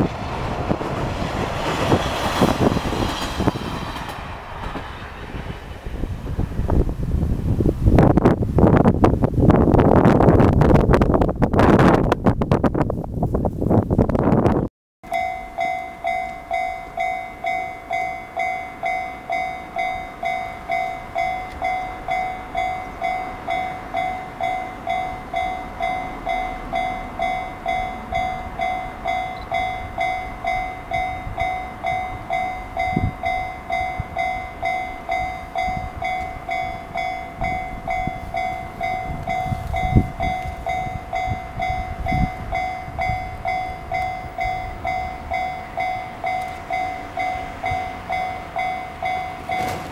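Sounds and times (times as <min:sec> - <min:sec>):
wind thumps on microphone: 0:00.0 - 0:14.7, 0:27.7 - 0:47.9
level crossing warning bell: 0:15.0 - 0:49.9.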